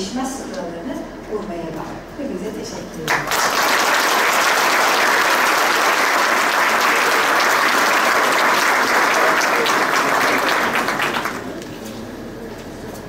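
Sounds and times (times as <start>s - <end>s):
audience applauding: 3.1s - 11.7s.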